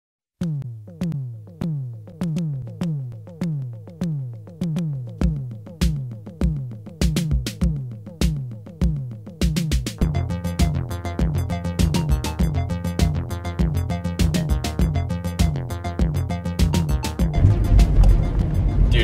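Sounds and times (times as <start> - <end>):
deep kick drum: 16.0 - 19.0
synthesizer notes sliding down: 16.3 - 19.0.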